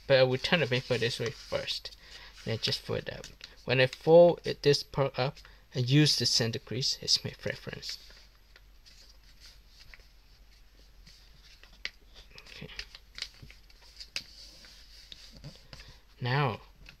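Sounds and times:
paper rustling: 0.1s - 4.1s, 7.3s - 16.1s
paper crinkling: 0.3s - 4.0s, 7.7s - 16.1s.

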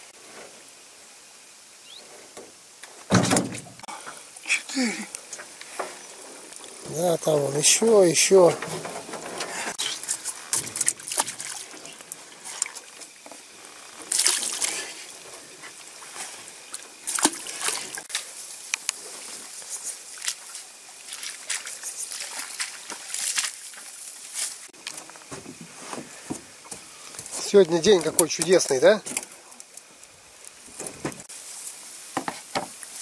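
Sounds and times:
water sloshing and splashing: 8.3s - 24.7s
footsteps through tall grass: 19.1s - 26.3s.

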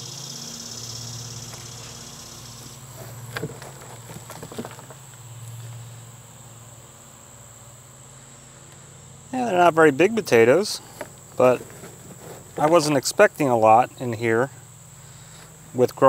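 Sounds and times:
insects buzzing: 0.0s - 16.0s
hands rummaging through soil: 2.9s - 5.8s, 10.8s - 13.5s.

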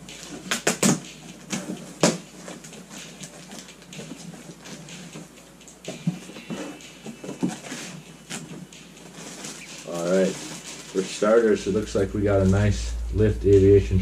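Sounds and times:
contents crackling and rustling: 0.1s - 12.7s.

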